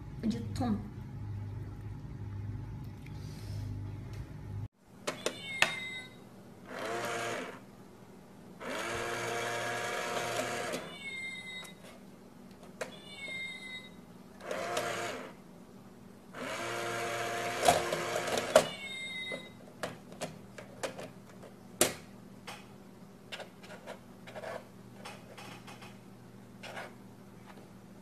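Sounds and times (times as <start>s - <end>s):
toy coin bank motor whirring: 6.7s - 7.6s, 8.6s - 10.9s, 14.4s - 15.4s, 16.4s - 18.7s.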